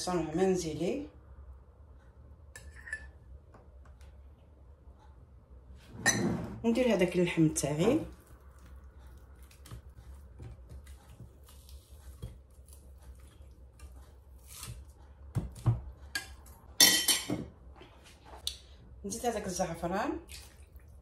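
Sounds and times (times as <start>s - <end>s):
metal spoon scraping steel bowl: 2.6s - 3.1s.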